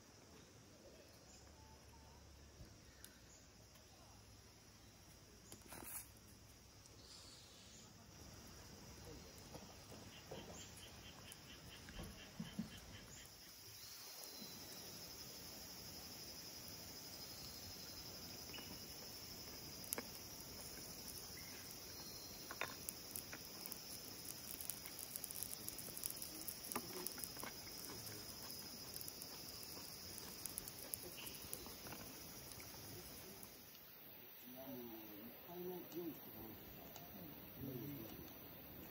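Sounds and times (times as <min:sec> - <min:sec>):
insects chirring: 0:00.0 - 0:38.9
faint clicks and crackles: 0:18.4 - 0:33.9.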